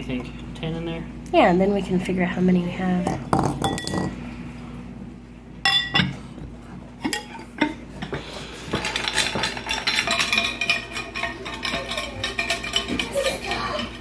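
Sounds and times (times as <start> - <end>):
eggs clinking in shaken bowls: 7.0 - 14.0.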